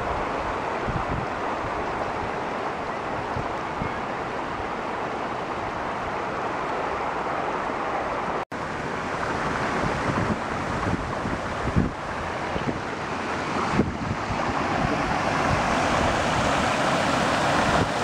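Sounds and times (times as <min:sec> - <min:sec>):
wind buffeting microphone: 0:00.0 - 0:02.5, 0:08.8 - 0:18.0
floodwater rushing: 0:00.0 - 0:18.0.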